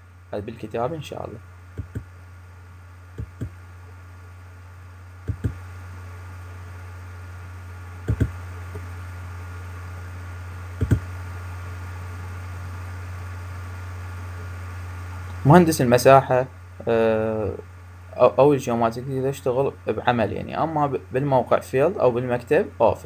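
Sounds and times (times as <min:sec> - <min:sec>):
low electrical hum: 0:00.0 - 0:23.0
computer mouse double clicks: 0:01.8 - 0:02.1, 0:05.3 - 0:05.6, 0:08.1 - 0:08.4, 0:10.8 - 0:11.1.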